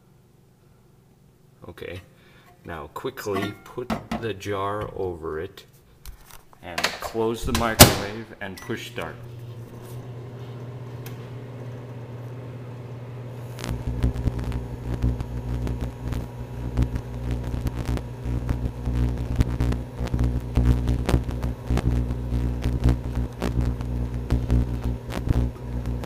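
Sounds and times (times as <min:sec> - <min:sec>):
microwave oven humming: 0:07.5 - 0:26.0
rough buzzing with sharp crackles: 0:13.4 - 0:26.0.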